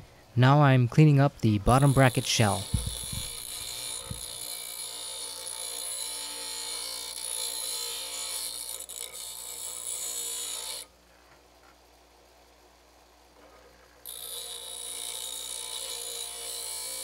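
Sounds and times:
bench grinder grinding metal: 1.6s - 10.9s, 14.0s - 17.0s.

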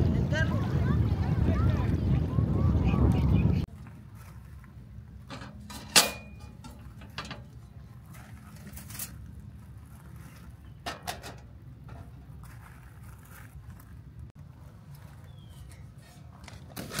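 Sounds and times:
metal grill grate clanking: 5.2s - 9.2s, 10.8s - 12.3s, 15.6s - 17.0s.

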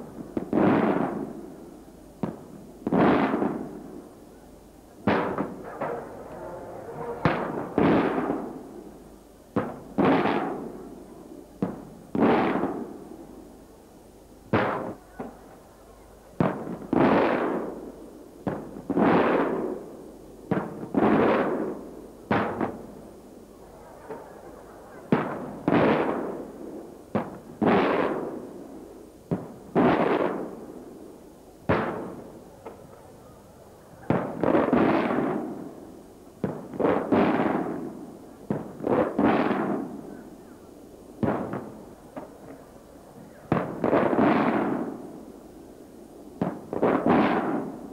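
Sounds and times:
fireworks bursting with echo: 0.0s - 13.6s, 14.5s - 15.6s, 16.4s - 47.9s.

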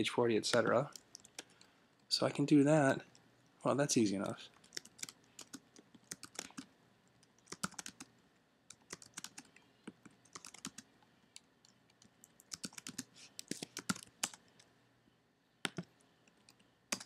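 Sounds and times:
keyboard typing: 0.5s - 1.6s, 4.5s - 8.1s, 8.7s - 10.9s, 11.6s - 14.6s, 15.6s - 17.0s.

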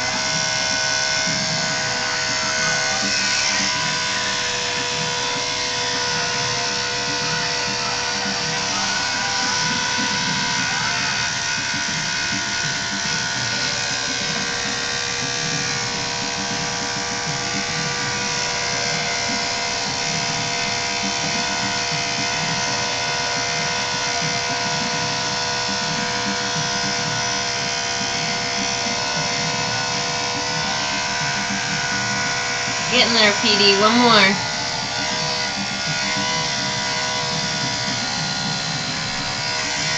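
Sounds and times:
electric hair clippers buzzing: 0.0s - 39.9s.

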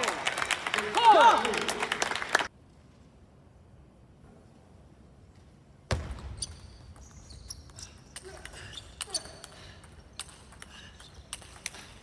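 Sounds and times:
shoes squeaking on floor: 6.4s - 9.5s.

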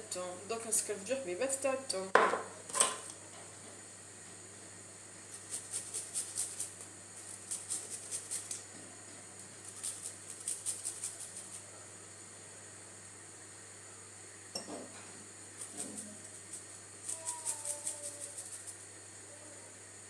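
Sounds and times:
knock: 2.2s - 2.5s
garlic scraping on metal grater: 5.4s - 8.5s.

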